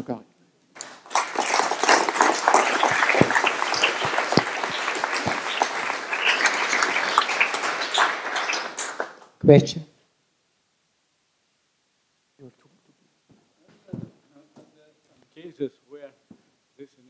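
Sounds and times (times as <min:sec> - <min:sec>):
audience applauding: 0:00.8 - 0:09.4.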